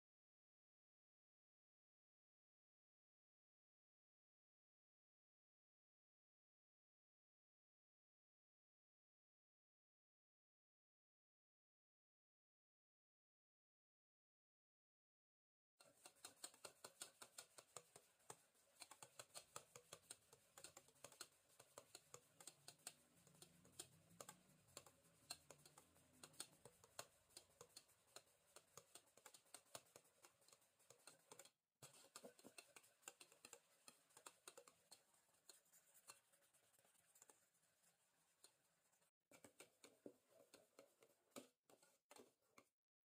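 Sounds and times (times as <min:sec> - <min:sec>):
whisk clicking against bowl: 0:15.8 - 0:37.4, 0:39.3 - 0:42.7.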